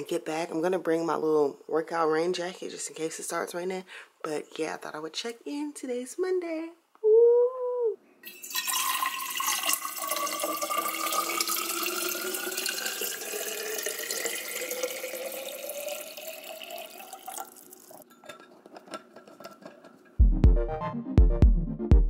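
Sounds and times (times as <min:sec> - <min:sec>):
water pouring into a metal bottle: 0:08.2 - 0:18.0.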